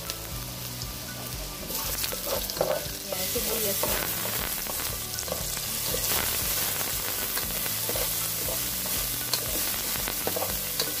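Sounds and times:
onions sizzling in hot oil: 0.0s - 11.0s
spatula clicking against pot: 10.2s - 11.0s.

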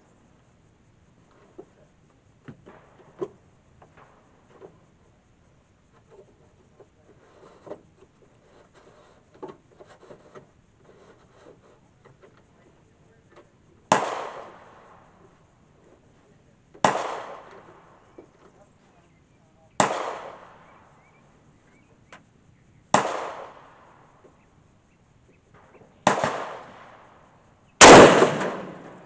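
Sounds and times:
rifle shot: 13.9s - 14.8s, 16.8s - 17.7s, 19.8s - 20.7s, 22.9s - 23.9s, 26.0s - 27.0s, 27.8s - 29.0s.

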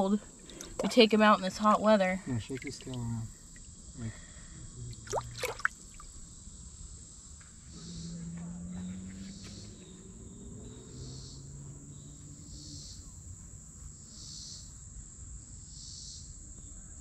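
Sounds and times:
insect pulsing call: 0.0s - 13.3s
faint low hum: 0.0s - 14.2s
insects droning: 0.0s - 17.0s.

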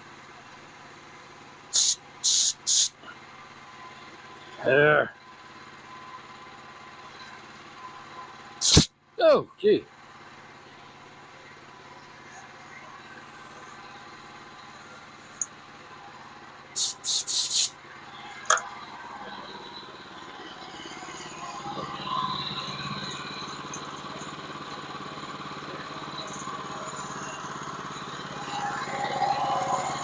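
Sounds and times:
small gasoline engine running: 0.0s - 8.9s, 9.8s - 30.0s
short hissing bursts: 1.7s - 3.0s, 8.6s - 8.9s, 16.8s - 17.7s
sharp click: 8.6s - 8.9s.

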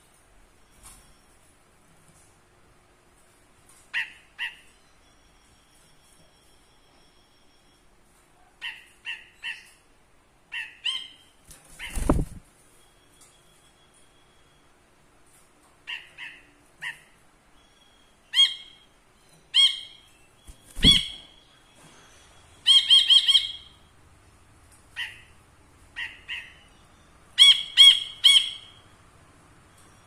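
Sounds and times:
bird ringing call notes: 15.9s - 23.9s, 26.0s - 29.0s.

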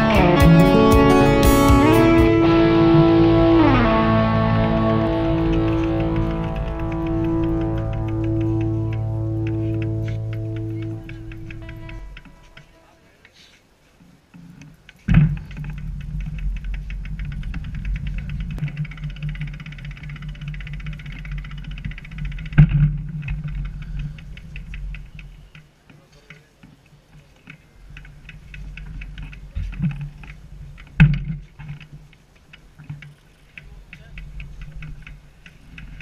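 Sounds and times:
low hum: 0.0s - 12.9s
bicycle freewheel ticking: 3.0s - 12.8s, 15.4s - 25.6s, 32.4s - 36.0s.

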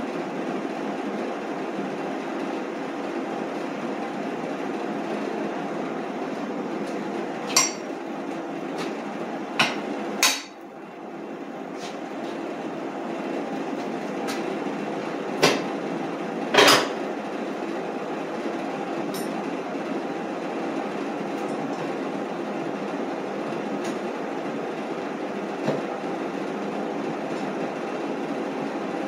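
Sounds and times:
metal clanks and knocks: 7.5s - 7.9s.

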